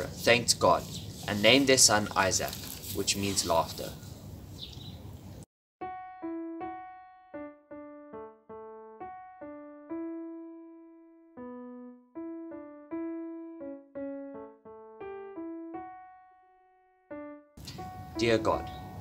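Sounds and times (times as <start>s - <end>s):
slow solo piano melody: 5.8s - 19.0s.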